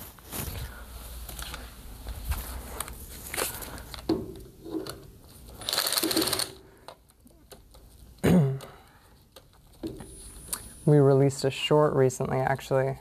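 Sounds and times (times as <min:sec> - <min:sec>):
screw clicking and rattling: 0:04.8 - 0:06.6.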